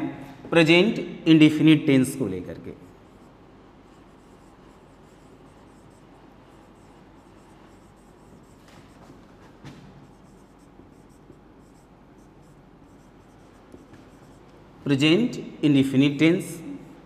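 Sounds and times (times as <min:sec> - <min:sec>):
marker scratching on whiteboard: 0:02.6 - 0:14.7.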